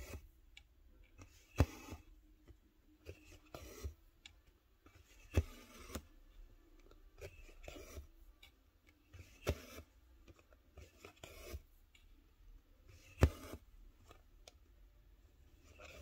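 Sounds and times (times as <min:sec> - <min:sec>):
thread rasping through fabric: 0:06.9 - 0:11.8.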